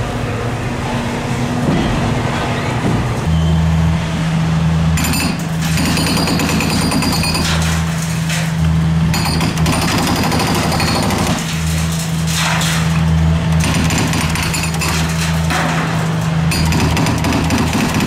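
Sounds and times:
diesel engine humming: 0.0s - 17.3s
hydraulic breaker hammering concrete: 5.0s - 7.8s, 9.0s - 12.9s, 13.5s - 18.0s.

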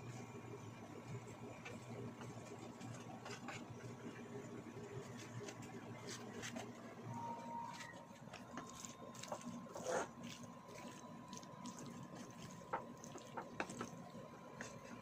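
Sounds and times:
wet squishing of pasta: 7.7s - 15.0s.

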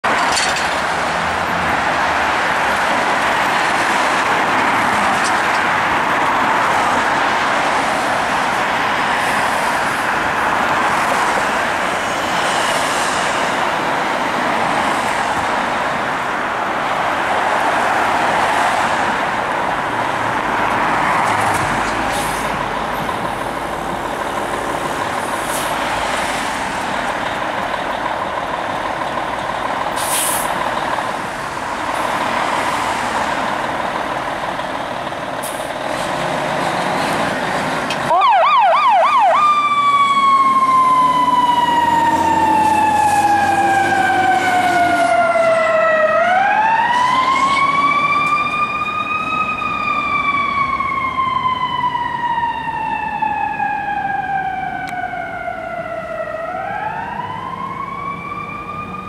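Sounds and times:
street traffic: 0.0s - 59.0s
fire engine diesel running: 21.9s - 59.0s
air hisses: 30.0s - 30.5s.

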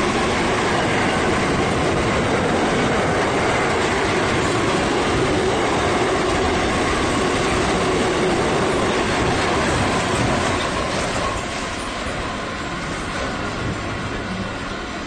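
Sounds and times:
freight train wheels on rails: 0.0s - 15.0s.

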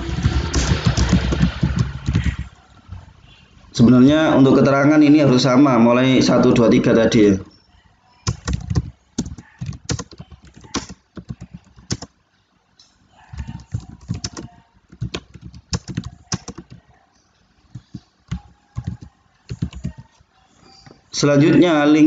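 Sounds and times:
typing on computer keyboard: 0.0s - 2.6s, 8.2s - 12.2s, 13.3s - 17.0s, 17.7s - 20.2s.

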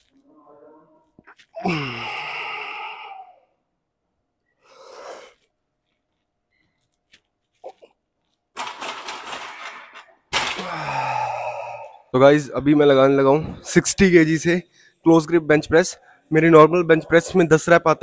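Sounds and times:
man sighing: 1.5s - 3.5s, 10.5s - 12.1s
breathy exhales: 10.6s - 12.1s.

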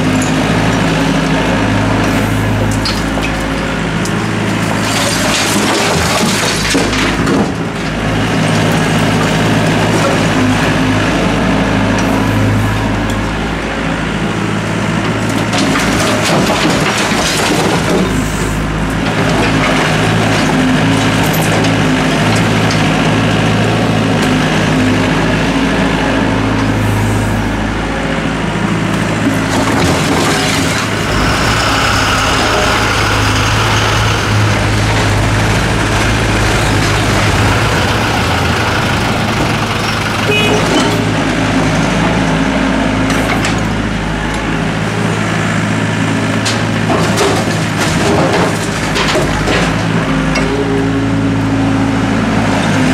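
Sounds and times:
excavator diesel engine: 0.0s - 52.9s
rubble clattering into metal bed: 4.6s - 10.4s, 15.3s - 18.3s, 29.2s - 31.1s, 46.4s - 50.5s.

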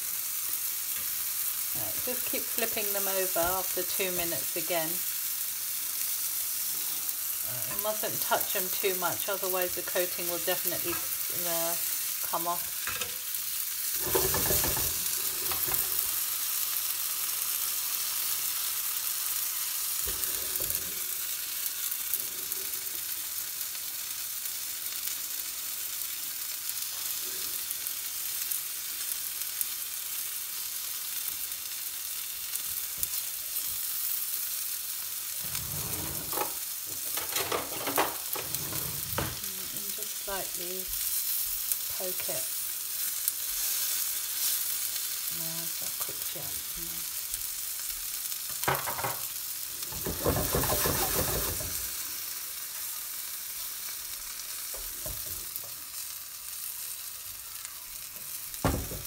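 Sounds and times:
chicken frying in oil: 0.0s - 35.6s, 36.2s - 59.0s
utensil scraping pan: 13.9s - 16.2s, 35.4s - 39.5s, 49.9s - 51.9s.

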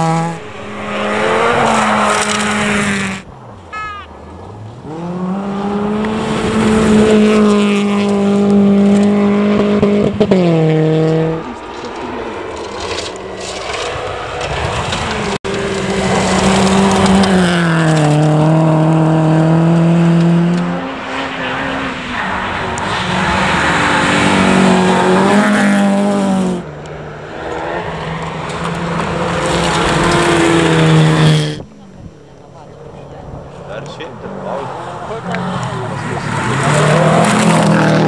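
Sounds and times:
rally car engines revving: 0.0s - 38.0s
gravel and tyres hissing: 11.1s - 19.5s.

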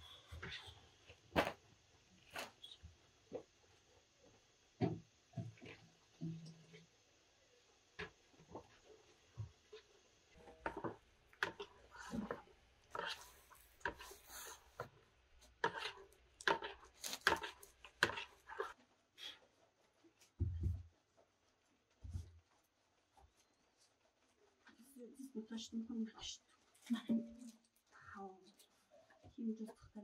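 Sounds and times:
spoon scraping batter in bucket: 10.5s - 19.5s.

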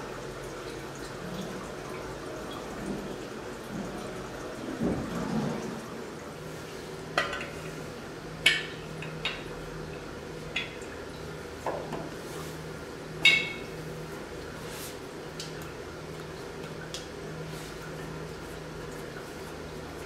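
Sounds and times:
glass jug clinking on metal tap: 13.2s - 13.7s.

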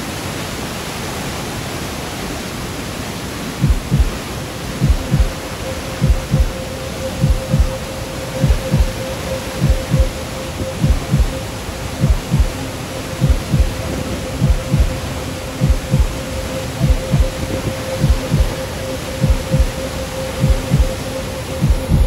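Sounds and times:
heartbeat-like low thumps: 3.6s - 4.2s, 4.8s - 5.4s, 6.0s - 6.6s, 7.2s - 7.8s, 8.4s - 9.0s, 9.6s - 10.2s, 10.8s - 11.4s, 12.0s - 12.6s, 13.2s - 16.2s, 16.8s - 17.4s, 18.0s - 18.5s, 19.2s - 19.7s, 20.4s - 21.0s, 21.6s - 22.0s
steady hum: 3.6s - 22.0s.

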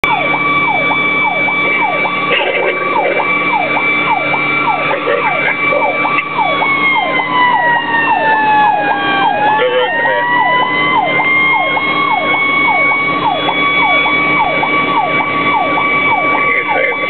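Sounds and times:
siren fast yelp: 0.0s - 17.0s
steady high siren tone: 0.0s - 17.0s.

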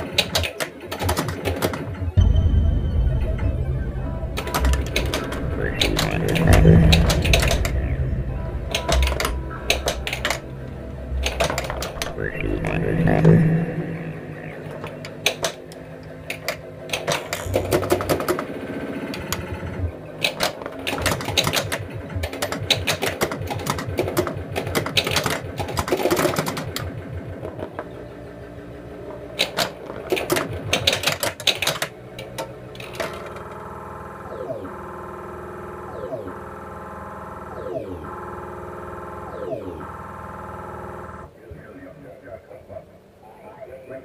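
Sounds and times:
pinball machine clicking and knocking: 0.0s - 2.2s, 4.4s - 7.8s, 8.7s - 10.4s, 14.8s - 15.7s, 16.3s - 19.6s, 20.2s - 27.9s, 29.4s - 33.6s
electronic drone with falling tones: 2.0s - 22.2s, 32.0s - 41.3s
electronic sound effects: 2.2s - 20.3s.

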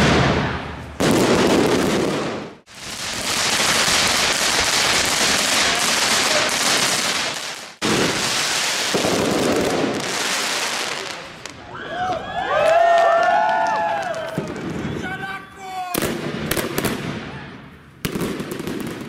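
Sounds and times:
fireworks crackling: 0.0s - 11.6s, 17.8s - 19.0s.

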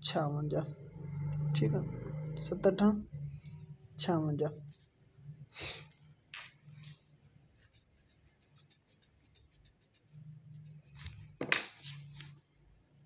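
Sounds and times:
pencil scratching on paper: 6.8s - 12.5s
pencil ticking on paper: 7.3s - 10.8s.

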